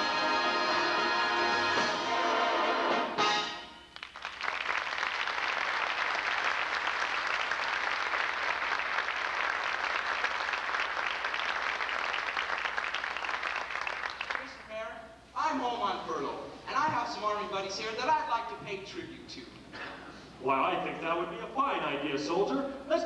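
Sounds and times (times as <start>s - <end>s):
audience applauding: 3.9s - 14.7s.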